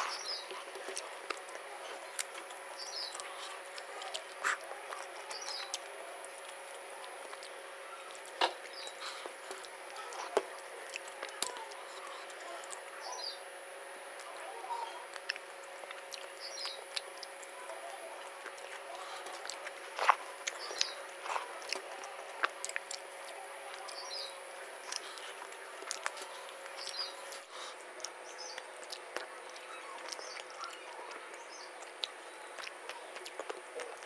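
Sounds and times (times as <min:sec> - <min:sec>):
chewing and mouth smacks: 0:00.0 - 0:12.9, 0:15.0 - 0:34.0
fingers squelching food on plate: 0:14.0 - 0:34.0.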